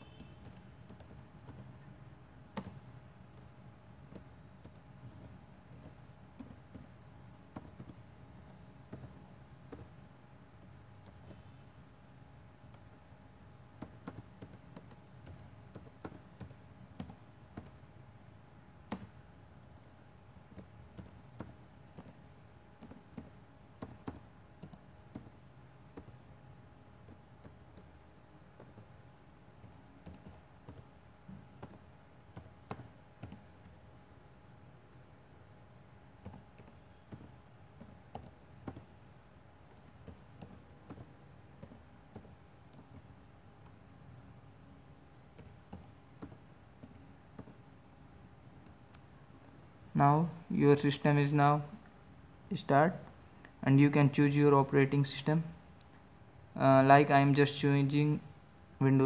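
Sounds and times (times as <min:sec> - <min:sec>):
laptop keyboard typing: 0:00.0 - 0:11.6, 0:13.7 - 0:18.0, 0:18.8 - 0:26.4, 0:27.0 - 0:33.9, 0:36.1 - 0:39.0, 0:39.6 - 0:44.2, 0:45.2 - 0:47.7, 0:48.5 - 0:49.8.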